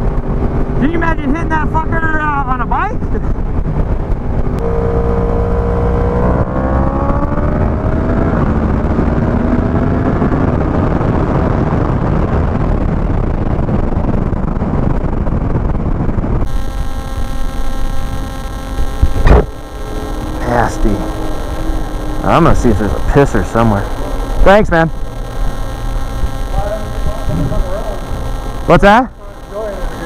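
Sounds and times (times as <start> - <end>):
wind rush: 0.0 - 28.8
electrical hum: 0.0 - 30.0
motorcycle engine revving: 3.6 - 12.0, 16.4 - 30.0.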